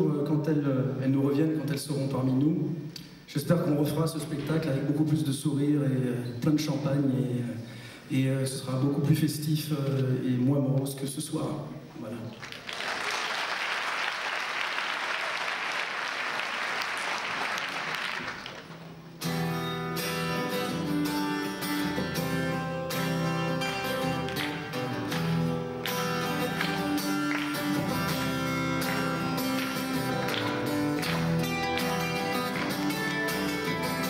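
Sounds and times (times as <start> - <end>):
audience applauding: 12.4 - 18.9, 24.0 - 34.0
acoustic guitar chords: 19.2 - 34.0.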